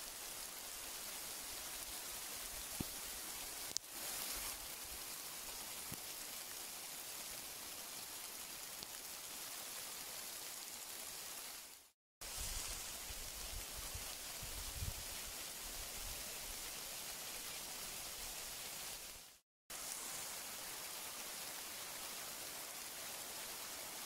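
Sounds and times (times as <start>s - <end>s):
steady rain hiss: 0.0s - 24.0s.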